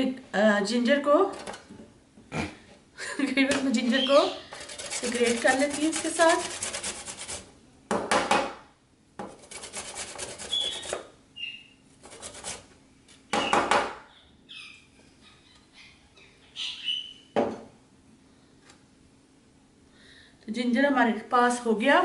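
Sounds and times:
ginger grated on metal grater: 0:04.2 - 0:07.5, 0:09.2 - 0:11.0, 0:12.0 - 0:12.7.

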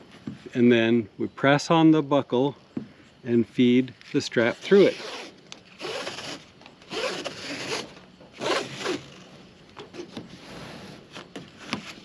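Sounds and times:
nylon strap pulled through buckle: 0:04.0 - 0:09.3.

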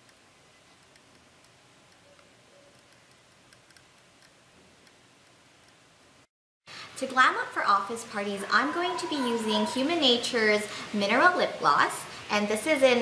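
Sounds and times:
faint scattered ticks: 0:00.0 - 0:05.9.

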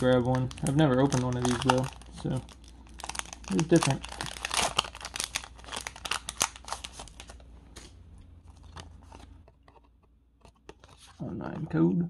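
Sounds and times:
foil wrapper tearing and crinkling: 0:00.0 - 0:07.4.

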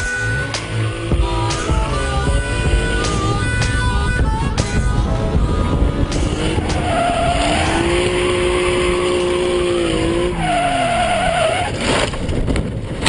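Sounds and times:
car engine at high revs: 0:00.0 - 0:13.0
tyres squealing: 0:06.1 - 0:11.8.

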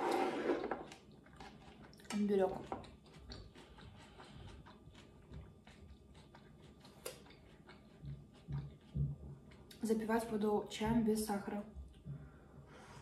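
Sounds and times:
chewing mouth clicks: 0:00.9 - 0:09.8.

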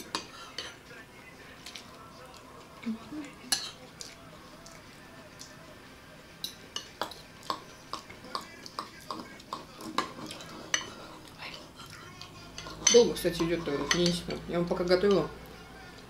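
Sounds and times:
cutlery clinking against bowls: 0:00.0 - 0:00.8, 0:03.3 - 0:04.8, 0:06.4 - 0:15.3.

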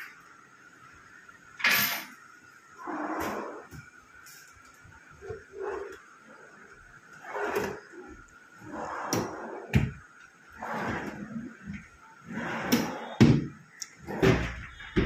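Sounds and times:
drawer sliding on ball-bearing slides: 0:02.8 - 0:03.8, 0:07.2 - 0:15.0.

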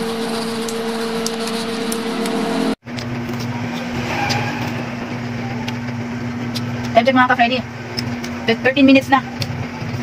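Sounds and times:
machine hum: 0:00.0 - 0:10.0
low rumble: 0:01.2 - 0:08.7.

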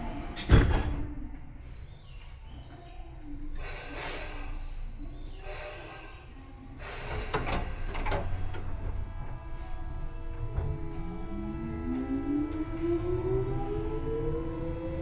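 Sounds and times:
steady electrical tones: 0:00.0 - 0:00.6, 0:03.0 - 0:15.0
train equipment hissing: 0:03.2 - 0:11.8
knocks from train equipment: 0:07.1 - 0:09.4.

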